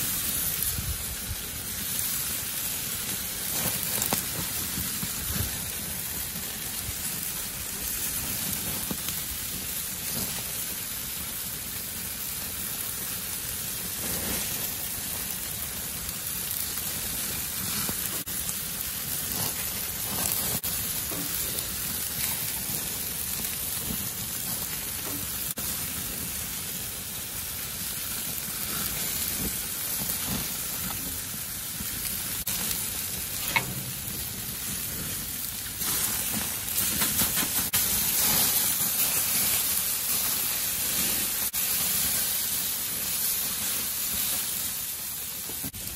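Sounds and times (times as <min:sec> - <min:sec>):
meat sizzling on a grill: 0:00.0 - 0:45.9
pops and crackles: 0:03.5 - 0:05.5, 0:35.7 - 0:37.9.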